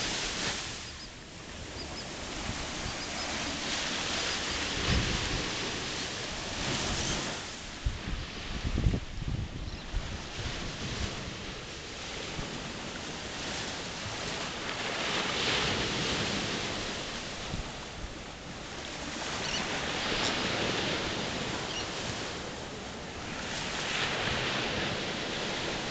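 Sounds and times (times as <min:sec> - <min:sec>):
surf washing on beach: 0:00.0 - 0:25.9
wind rumbling on microphone: 0:00.0 - 0:25.9.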